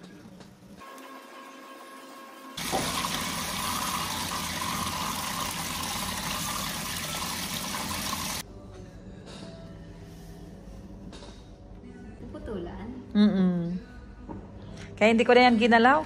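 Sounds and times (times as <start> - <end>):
shower spraying and splashing water: 2.6 - 8.4.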